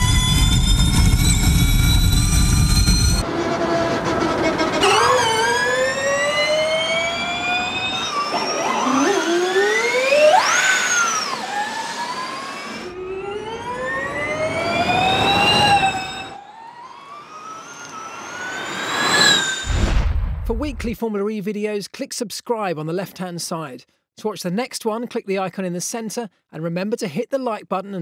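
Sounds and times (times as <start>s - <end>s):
electric race car whine: 0.0s - 19.7s.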